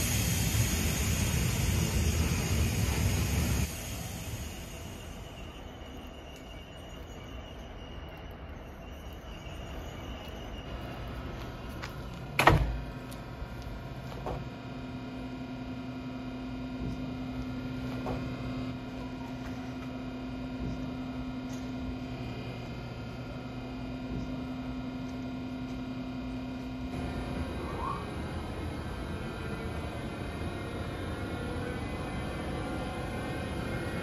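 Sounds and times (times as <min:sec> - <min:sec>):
locomotive low hum: 0:00.0 - 0:34.0.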